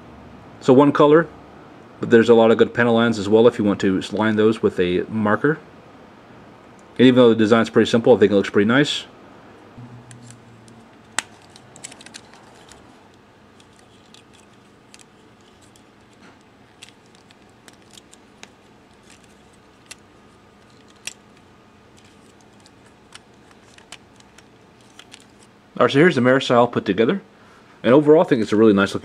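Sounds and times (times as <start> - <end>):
plastic parts clicking: 10.1 - 25.5.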